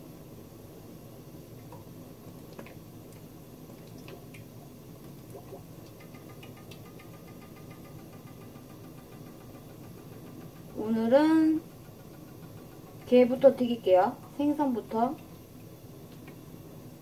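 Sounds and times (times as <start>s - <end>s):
fast run of faint ticks: 5.8s - 10.9s.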